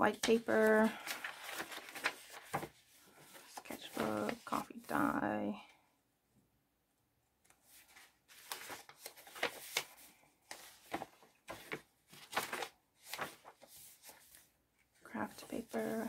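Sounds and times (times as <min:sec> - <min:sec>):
paper pages turning: 0:00.1 - 0:04.9, 0:07.4 - 0:14.5, 0:15.3 - 0:16.0.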